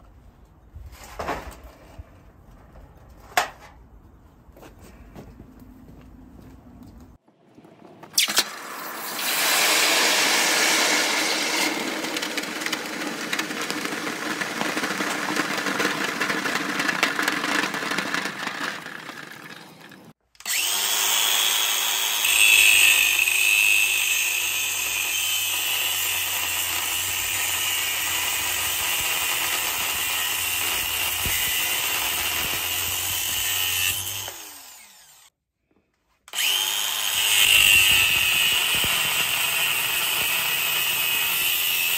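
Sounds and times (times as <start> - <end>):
angle grinder grinding metal: 8.2 - 35.3, 36.3 - 41.9
rough power tool noise: 8.2 - 35.4, 36.3 - 41.9.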